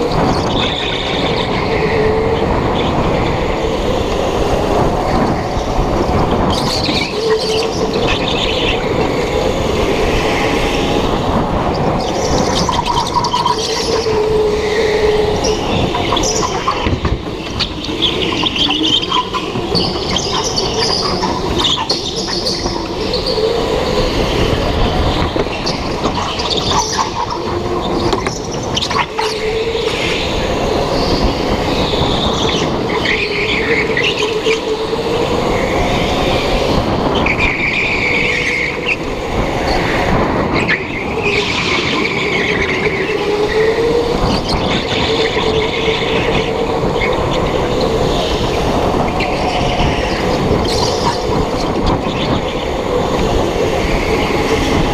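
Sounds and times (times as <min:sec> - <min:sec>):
tyres squealing: 0:11.8 - 0:34.8.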